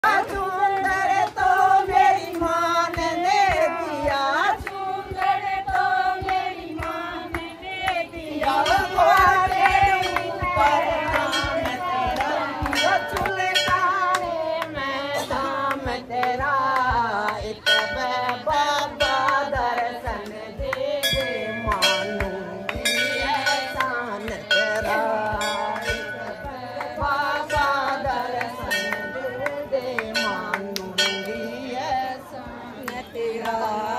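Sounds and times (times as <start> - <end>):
percussion beat: 0.0 - 33.9
person singing: 6.9 - 33.9.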